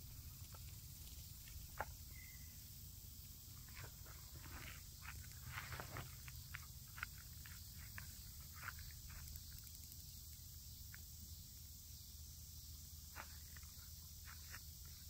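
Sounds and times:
footsteps on gravel: 3.6s - 9.3s, 13.2s - 14.7s.

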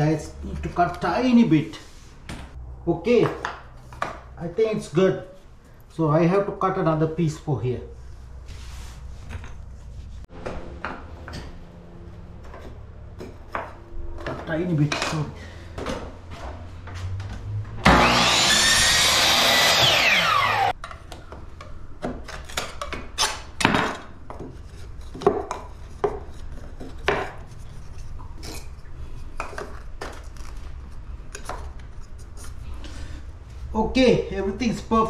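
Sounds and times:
electric saw cutting wood: 17.8s - 20.7s.

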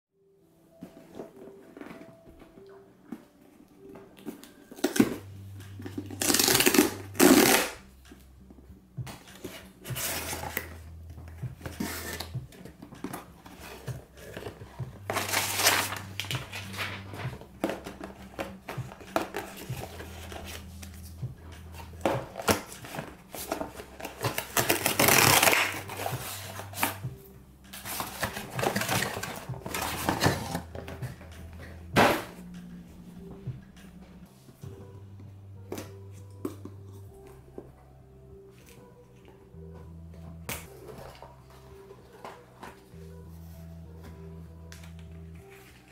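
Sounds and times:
tear strip pulled: 6.2s - 7.8s
cardboard packaging rustling: 9.3s - 27.0s, 27.7s - 32.4s.

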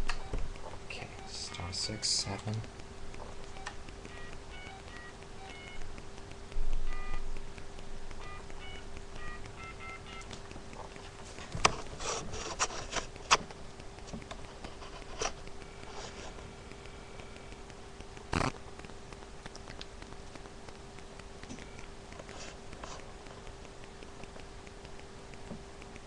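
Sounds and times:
touch-tone keypad beeps: 3.5s - 5.8s, 6.9s - 7.2s, 8.2s - 10.3s.

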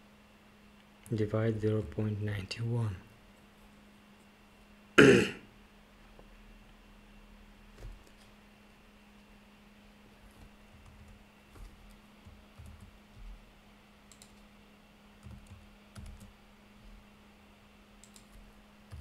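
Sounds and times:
steady low hum: 0.0s - 19.0s
faint keyboard typing: 7.7s - 8.4s, 10.1s - 14.6s, 15.2s - 17.0s, 18.0s - 19.0s.

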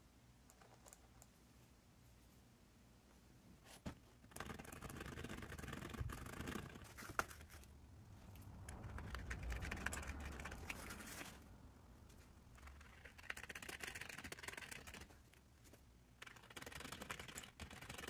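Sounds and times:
webbing rustling and scratching: 3.7s - 18.0s.

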